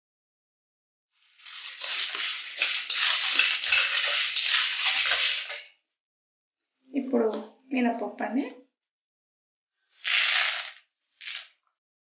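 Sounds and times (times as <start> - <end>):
spatula scraping metal pan: 1.2 - 5.6, 10.0 - 11.5
seeds rattling in a pan: 1.2 - 5.7, 10.0 - 11.6.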